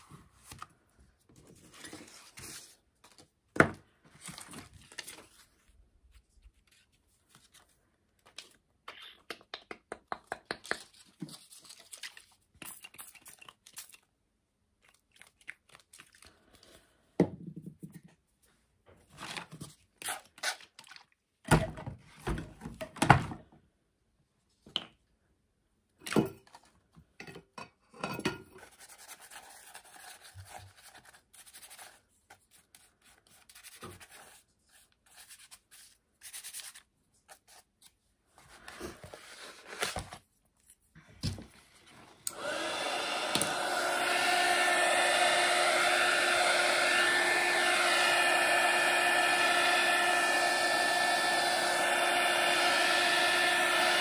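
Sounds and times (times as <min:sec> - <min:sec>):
hands tapping and rubbing: 0:08.9 - 0:11.5
heat tool blowing whine: 0:42.3 - 0:54.0.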